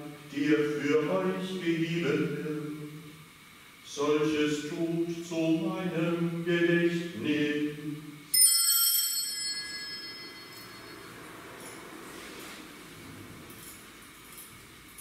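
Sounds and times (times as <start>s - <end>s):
man chanting: 0.0s - 3.1s, 3.9s - 8.2s
small altar bell ringing: 8.3s - 11.9s.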